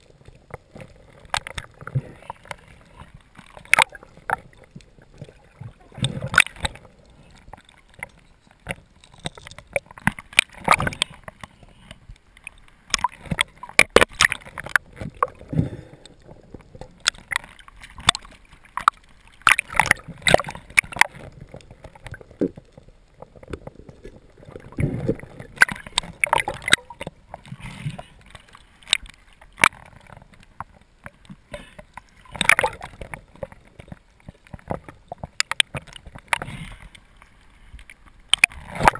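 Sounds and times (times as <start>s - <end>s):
water gurgling and sloshing: 0.0s - 38.9s
underwater clicks and knocks of metal: 6.0s - 11.5s, 12.9s - 15.5s, 24.7s - 27.5s, 32.2s - 36.9s, 38.3s - 38.9s.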